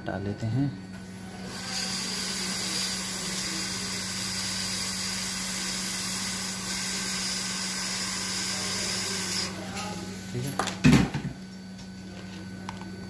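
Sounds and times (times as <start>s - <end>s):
hot air gun blowing: 1.4s - 9.6s.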